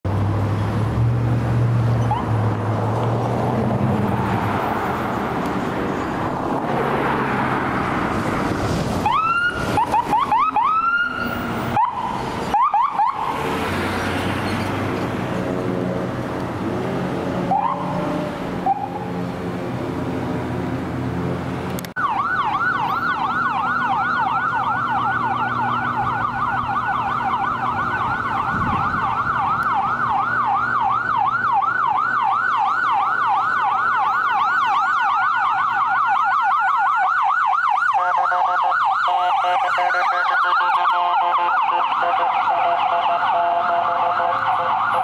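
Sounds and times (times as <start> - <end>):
traffic noise: 0.0 - 45.0
ambulance siren yelping: 9.0 - 14.4, 17.4 - 19.1, 21.9 - 45.0.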